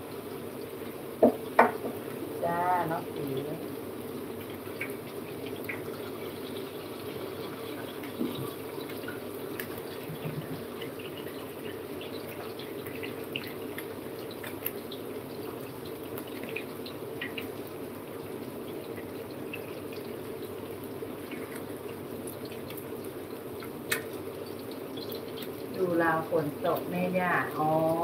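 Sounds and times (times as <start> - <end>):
tap running into sink: 1.2 - 2.0
faint crackles: 2.0 - 28.0.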